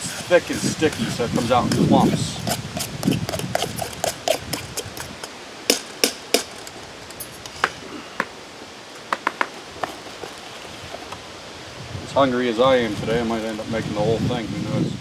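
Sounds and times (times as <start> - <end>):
spoon scraping metal bowl: 0.0 - 5.4.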